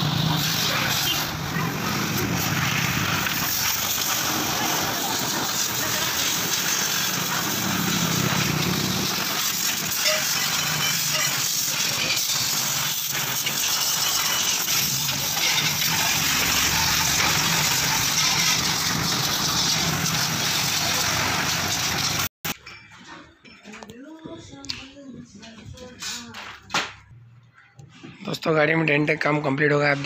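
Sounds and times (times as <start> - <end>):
pressure washer jet hissing: 0.0 - 22.3
water spattering on vehicle: 0.0 - 22.3.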